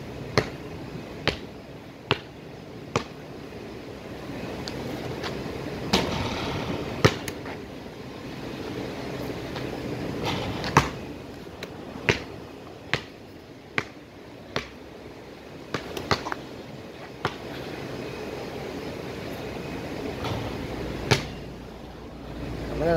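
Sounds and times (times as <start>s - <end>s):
basketball bouncing: 0.3s - 0.6s, 1.2s - 1.5s, 2.1s - 2.3s, 2.9s - 3.2s, 5.9s - 7.6s, 9.5s - 11.2s, 12.0s - 14.8s, 15.7s - 16.5s, 17.2s - 17.5s, 20.2s - 21.4s
basketball hitting hoop: 5.9s - 7.5s, 10.2s - 11.1s, 20.2s - 21.4s.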